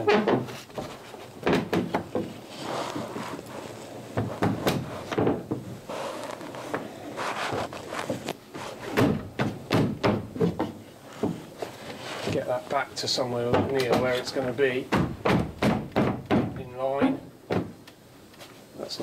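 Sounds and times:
wooden knocks and thumps: 0.0 - 2.4, 4.1 - 5.8, 7.5 - 12.5, 13.4 - 17.8.

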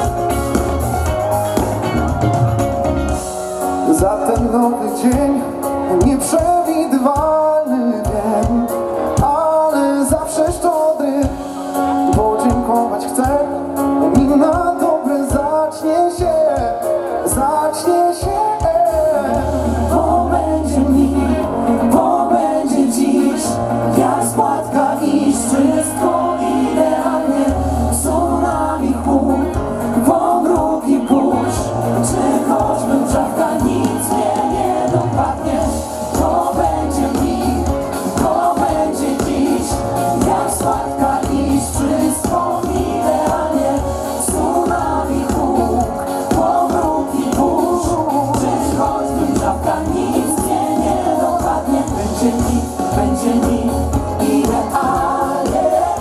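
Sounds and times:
live band playing: 0.0 - 56.0
man singing: 3.8 - 26.4, 27.2 - 34.2, 44.2 - 56.0
backing singers: 18.1 - 56.0.

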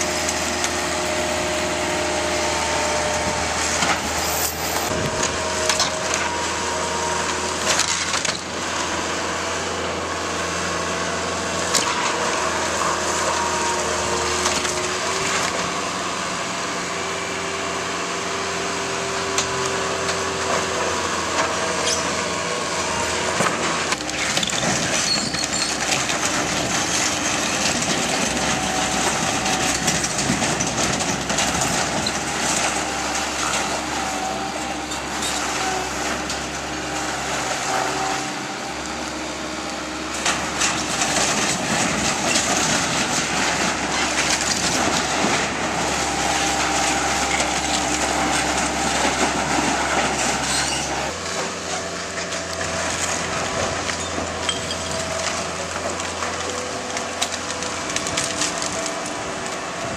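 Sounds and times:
diesel loader engine running: 0.0 - 59.9
wood cracking and splintering: 2.6 - 9.0, 11.5 - 16.0, 19.3 - 59.9
debris crushing: 20.1 - 39.2, 39.8 - 59.9.

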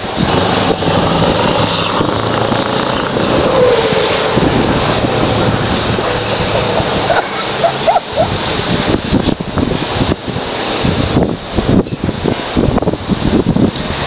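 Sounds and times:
diesel truck engine driving off: 0.0 - 9.2.

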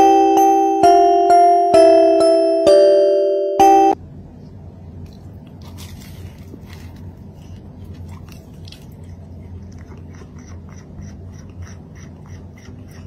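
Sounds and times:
low steady hum: 0.0 - 13.0
crisp chewing crunches: 5.0 - 12.8.

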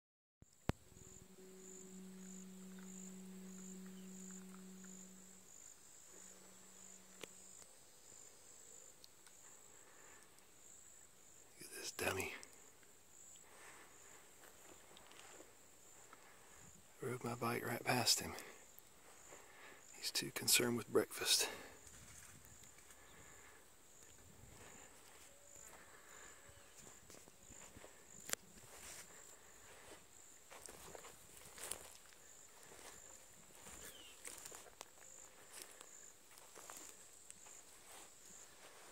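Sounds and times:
faint outdoor ambience: 0.4 - 38.9
faint high-pitched chirp: 0.5 - 10.2, 32.7 - 34.7
faint short tones: 0.5 - 10.2
high-pitched insect buzz: 0.5 - 20.6, 21.8 - 38.9
low steady hum: 0.5 - 38.9.

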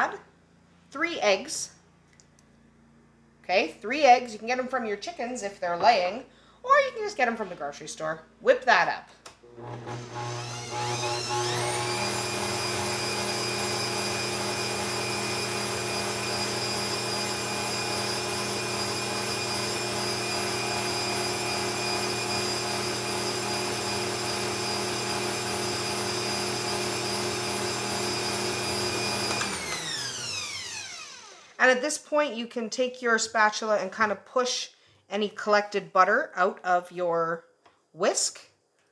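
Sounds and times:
kitchen mixer motor whining: 9.4 - 31.6.

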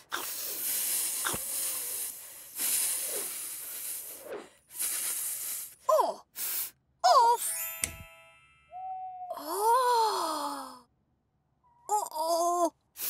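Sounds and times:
long hisses: 0.2 - 5.8.

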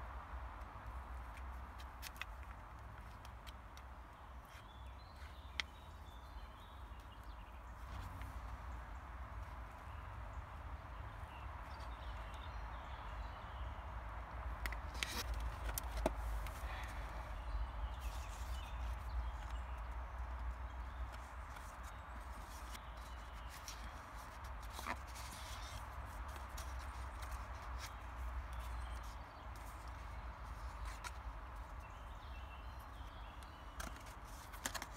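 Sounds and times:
cardboard and paper rustling: 21.0 - 31.3, 33.8 - 34.9.

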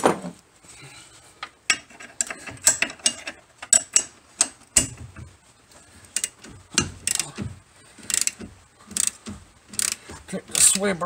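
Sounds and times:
ratchet wrench clicking: 6.1 - 7.3, 8.0 - 10.0.

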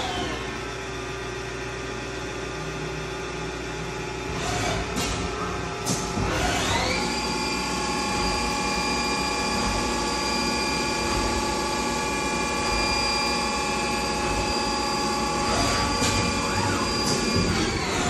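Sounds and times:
machine running noise: 0.0 - 18.0
lathe spindle whine: 6.6 - 18.0.

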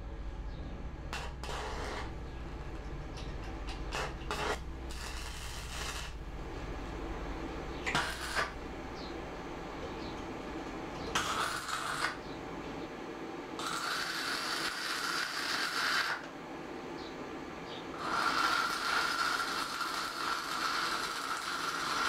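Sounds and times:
steady low hum: 0.0 - 22.0
metal scraping and rasping: 1.2 - 2.2, 3.3 - 6.2, 7.9 - 8.6, 13.6 - 16.2.

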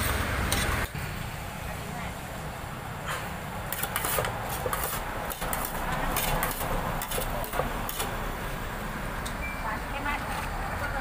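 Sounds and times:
metal spoon scraping saucepan: 3.7 - 8.1.

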